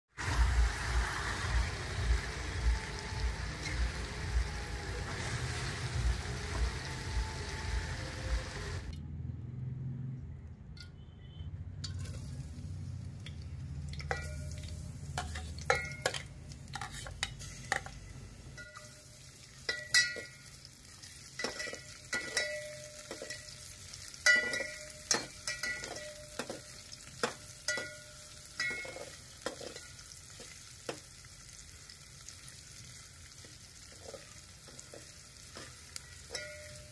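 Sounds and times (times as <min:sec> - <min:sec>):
onions sizzling in oil: 0:00.1 - 0:08.9, 0:11.8 - 0:36.9
ladle scraping and clinking pot: 0:13.9 - 0:18.0, 0:21.4 - 0:23.6, 0:24.2 - 0:31.0, 0:33.9 - 0:36.9.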